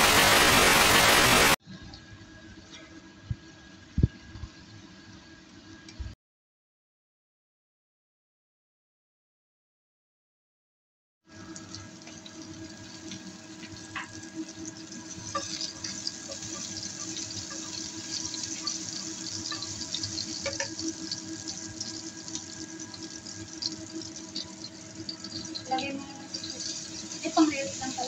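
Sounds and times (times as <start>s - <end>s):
scallions sizzling in hot oil: 11.4s - 28.0s
spatula tapping a pan: 19.4s - 20.9s.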